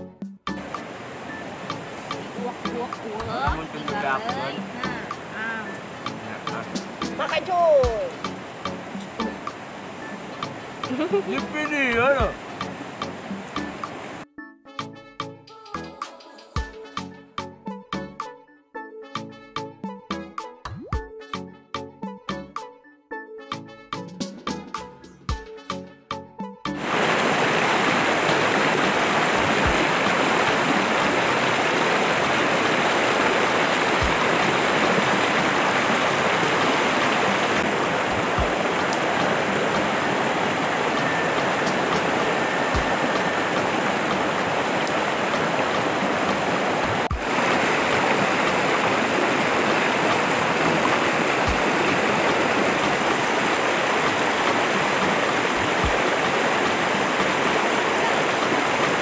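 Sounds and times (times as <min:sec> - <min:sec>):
river rushing over boulders: 0:00.6 - 0:14.2, 0:26.8 - 0:59.0.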